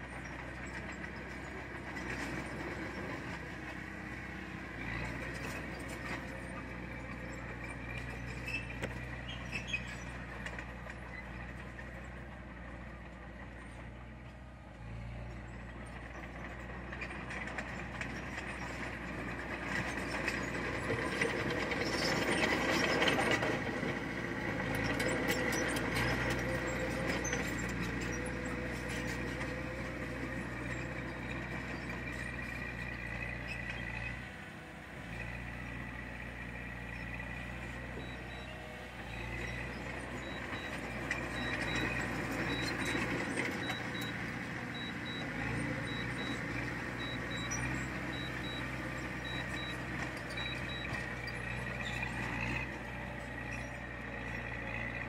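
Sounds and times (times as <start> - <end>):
heavy machinery diesel engine: 0.0 - 55.0
reversing alarm beeping: 40.2 - 44.2, 44.8 - 50.9.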